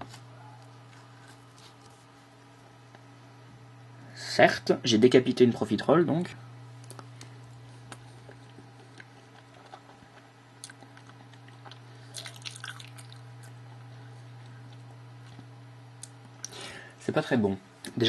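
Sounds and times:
person chewing: 0:07.8 - 0:16.6.

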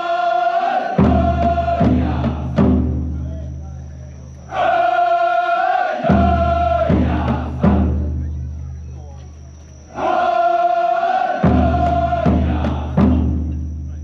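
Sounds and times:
voices chanting a held call: 0:00.0 - 0:14.0
big drum strikes: 0:01.0 - 0:03.2, 0:06.0 - 0:08.3, 0:11.4 - 0:13.8.

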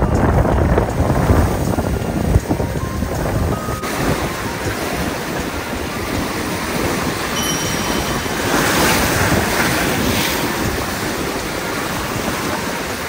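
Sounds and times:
wind buffeting microphone: 0:00.0 - 0:13.0
waves breaking on rocky shore: 0:00.1 - 0:13.0.

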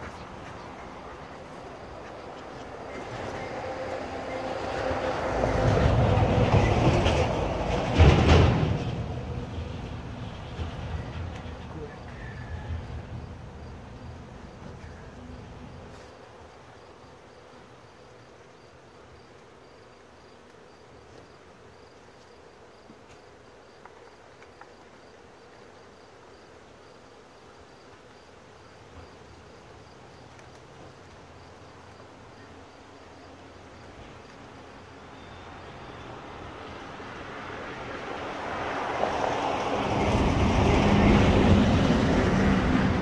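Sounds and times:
bees buzzing: 0:00.0 - 0:08.2, 0:08.9 - 0:39.3
high insect chirp: 0:09.1 - 0:43.0.

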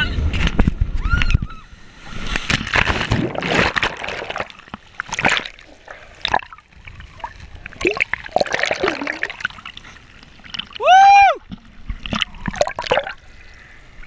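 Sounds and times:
sea water splashing: 0:01.8 - 0:14.0
underwater bubbling: 0:02.2 - 0:14.0.

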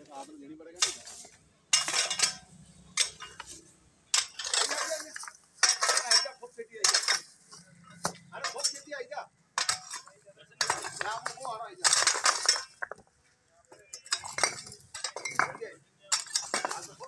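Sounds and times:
rake tines scraping stones: 0:00.8 - 0:07.3.

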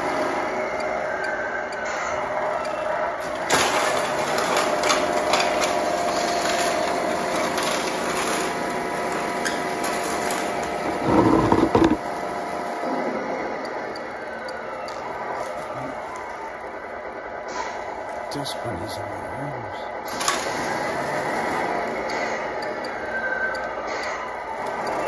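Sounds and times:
tires scrabbling on concrete: 0:04.0 - 0:12.0
sled scraping on floor: 0:10.8 - 0:12.0
electric motor whining: 0:10.9 - 0:12.0.

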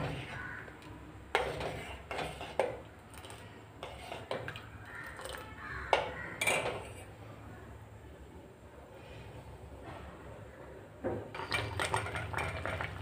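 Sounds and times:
spoon scraping a steel pot: 0:01.3 - 0:05.4.

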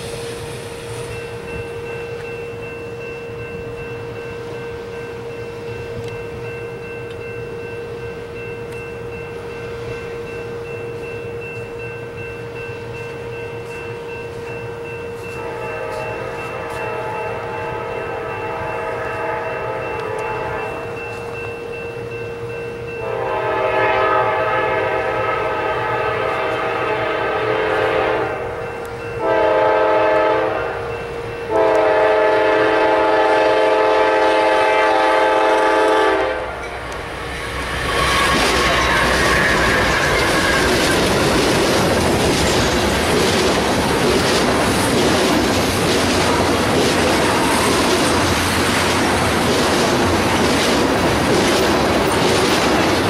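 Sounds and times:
locomotive air horn blasts: 0:15.2 - 0:21.0, 0:23.0 - 0:28.6, 0:29.2 - 0:37.0
train wheels clattering over rails: 0:36.6 - 0:53.0.

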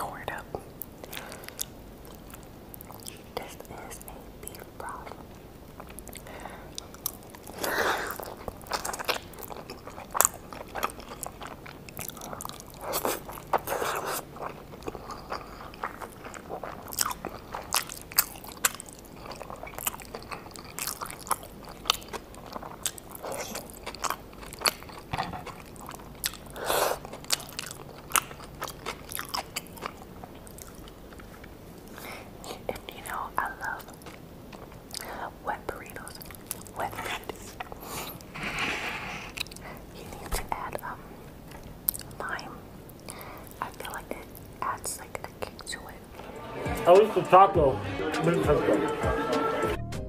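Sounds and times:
chewing: 0:01.0 - 0:03.3, 0:05.8 - 0:38.3.

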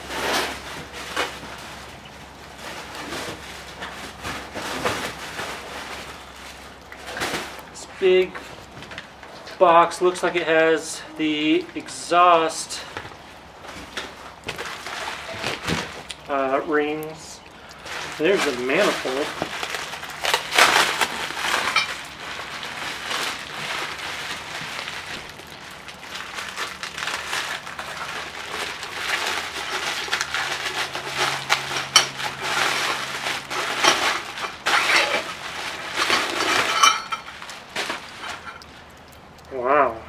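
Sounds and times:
bubble wrap crinkling: 0:00.0 - 0:39.5
metal pipes clinking: 0:35.9 - 0:37.5.

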